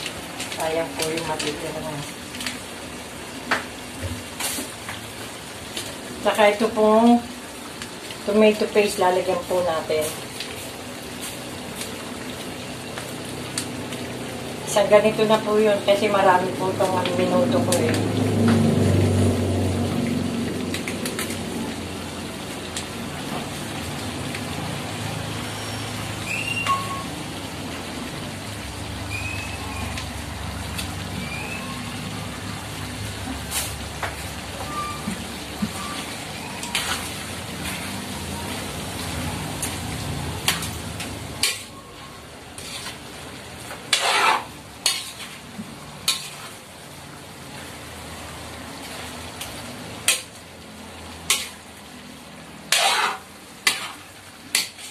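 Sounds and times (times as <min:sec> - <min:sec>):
food frying: 0:00.0 - 0:54.9
metal spoon scraping wok: 0:36.0 - 0:37.9, 0:41.4 - 0:41.8, 0:42.5 - 0:43.1, 0:43.7 - 0:46.6, 0:50.0 - 0:50.4, 0:51.2 - 0:51.7, 0:52.7 - 0:54.9
metal clanks against pan: 0:41.4 - 0:41.7, 0:50.0 - 0:50.3, 0:52.7 - 0:54.9.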